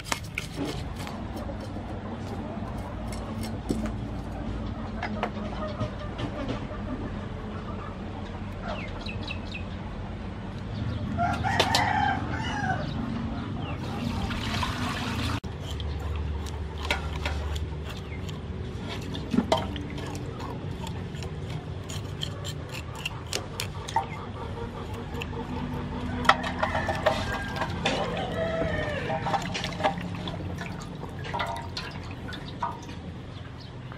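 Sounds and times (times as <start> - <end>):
knife scraping fish scales: 0.0 - 4.2, 15.4 - 28.4
rooster crowing: 11.1 - 13.0, 26.0 - 29.6.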